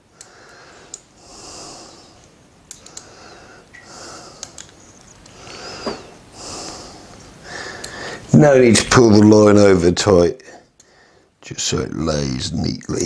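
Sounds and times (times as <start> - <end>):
man breathing through nose: 0.1 - 4.7, 5.3 - 8.3, 10.8 - 11.4.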